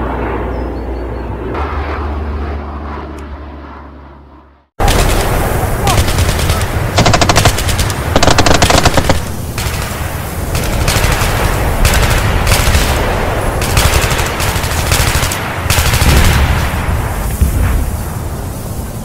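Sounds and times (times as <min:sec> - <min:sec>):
steady low rumble: 0:00.0 - 0:19.0
machine-gun fire bursts: 0:04.8 - 0:16.7.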